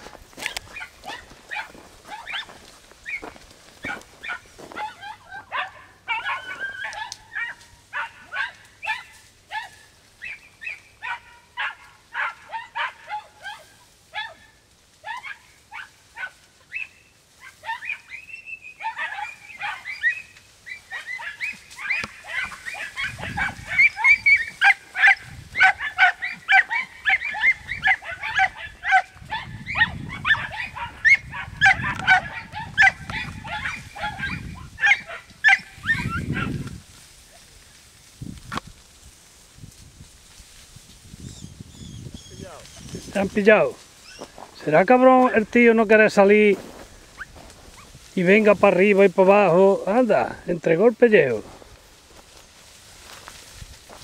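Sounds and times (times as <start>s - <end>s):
dogs barking: 0.0s - 36.8s.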